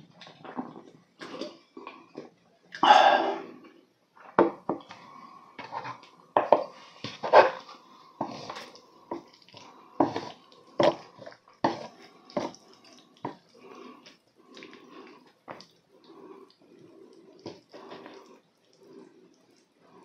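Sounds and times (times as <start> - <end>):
wet sticky noodle stirring: 4.8 - 20.0.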